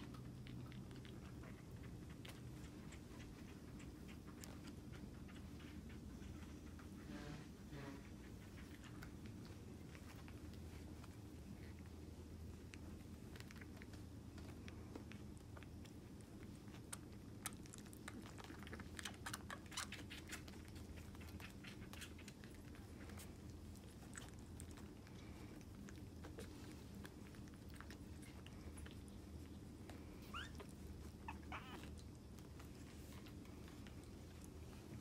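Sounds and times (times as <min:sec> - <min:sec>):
kitten suckling clicks and smacks: 0:00.0 - 0:07.0, 0:08.3 - 0:35.0
low steady hum: 0:00.0 - 0:35.0
kitten squeaking: 0:30.2 - 0:31.9.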